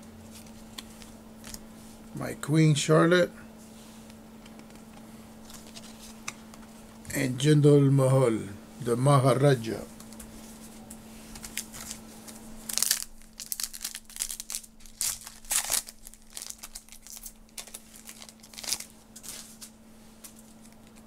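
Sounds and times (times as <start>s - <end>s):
wrapper being torn and crinkled: 11.4s - 21.0s.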